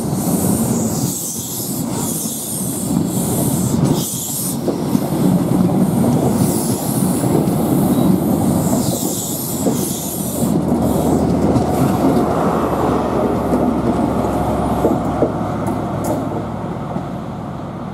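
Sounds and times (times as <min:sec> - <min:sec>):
train carriages clicking over rail joints: 0:00.0 - 0:17.1.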